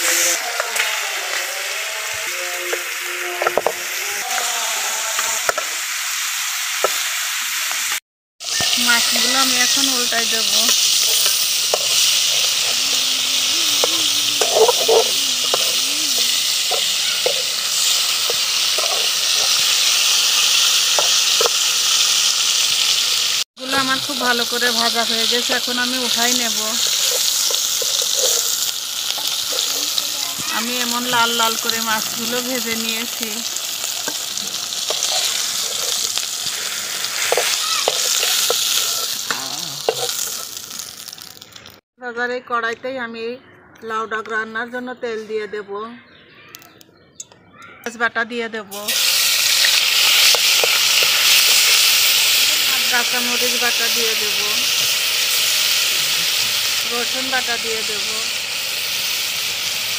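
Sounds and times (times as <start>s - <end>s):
fish frying in hot oil: 0.0s - 41.8s, 48.9s - 59.9s
metal spatula scraping a pan: 14.4s - 21.4s, 26.8s - 30.0s, 33.6s - 39.2s.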